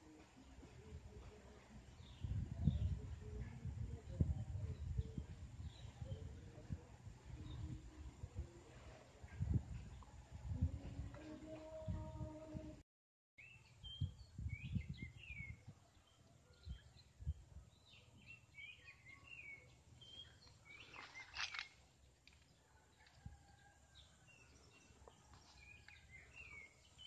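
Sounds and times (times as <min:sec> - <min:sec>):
faint outdoor background noise: 0:00.0 - 0:12.8, 0:13.4 - 0:27.0
small birds chirping: 0:13.4 - 0:22.6, 0:24.4 - 0:27.0.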